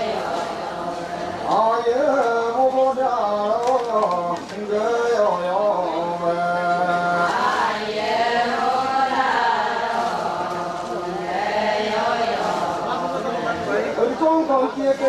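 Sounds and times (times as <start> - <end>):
women chanting in chorus: 0.0 - 1.6, 7.1 - 13.9.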